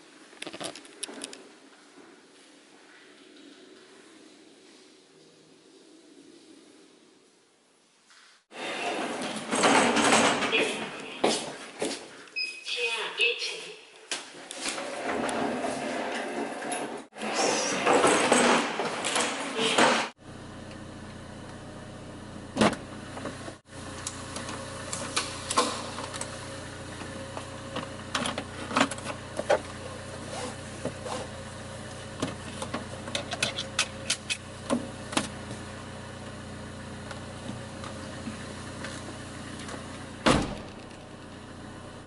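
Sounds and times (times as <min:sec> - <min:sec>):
loud thump: 0:40.2 - 0:40.8.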